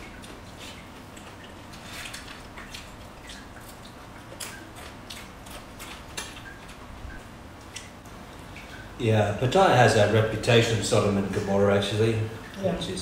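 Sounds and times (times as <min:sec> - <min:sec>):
wet chewing and lip smacks: 0:00.0 - 0:08.8.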